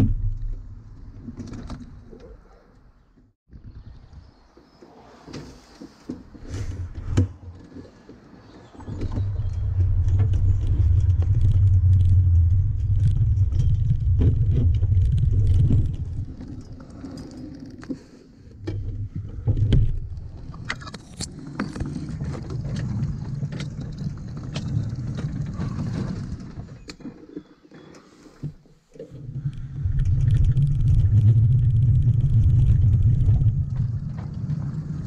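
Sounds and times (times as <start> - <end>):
twigs scraping against train: 9.2 - 18.3
miniature locomotive rumble: 18.8 - 27.4.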